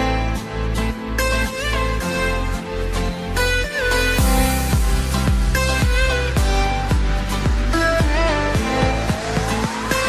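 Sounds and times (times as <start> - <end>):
tone rising in pitch: 8.5 - 10.0.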